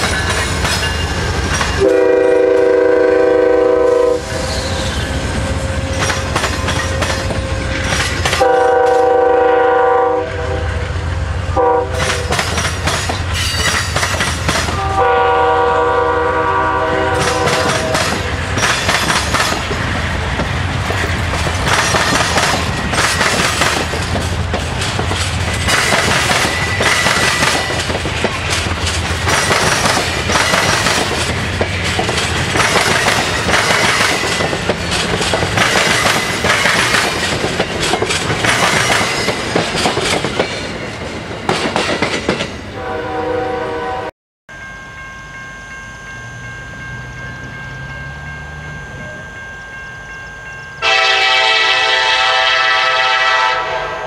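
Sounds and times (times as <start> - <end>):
train wheels clattering over rail joints: 0.0 - 2.6, 5.8 - 9.2, 11.9 - 15.2, 17.0 - 42.6
locomotive horn blasts: 1.8 - 4.8, 8.4 - 12.4, 14.7 - 18.3, 42.8 - 44.1, 50.8 - 54.0
faint high wheel squeal: 4.3 - 7.9.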